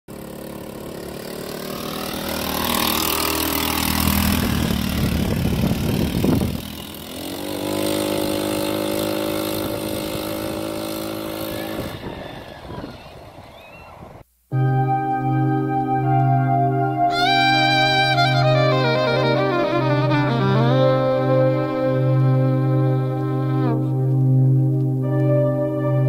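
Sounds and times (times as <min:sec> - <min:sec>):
go kart engine revving: 0:00.1 - 0:14.2.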